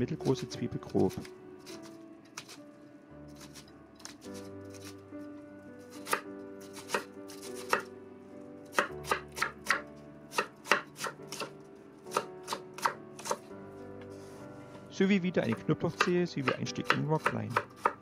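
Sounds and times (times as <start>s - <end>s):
knife chopping onion on wooden board: 6.0s - 7.9s, 8.7s - 11.5s, 12.1s - 13.4s, 15.4s - 18.0s.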